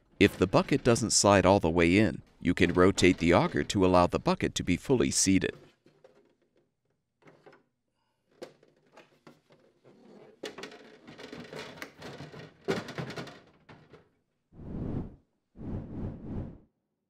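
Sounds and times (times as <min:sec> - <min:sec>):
plastic scraping and rattling: 0:05.4 - 0:14.2.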